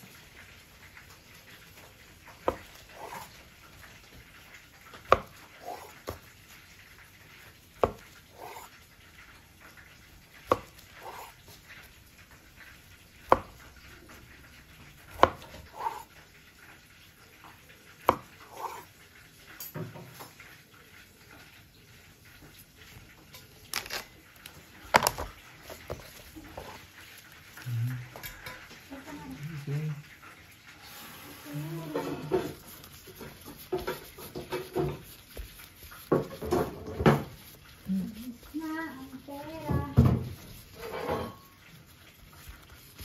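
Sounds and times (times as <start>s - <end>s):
knife tapping on wooden board: 15.2s - 16.0s.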